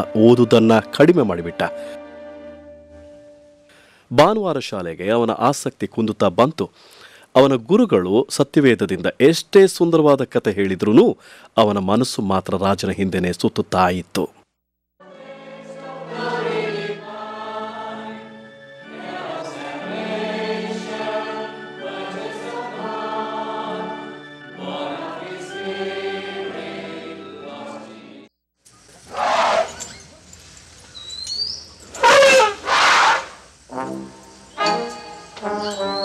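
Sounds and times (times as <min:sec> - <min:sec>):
choir singing a hymn: 0:15.0 - 0:28.3
elephant trumpeting: 0:29.1 - 0:29.9, 0:31.9 - 0:36.0.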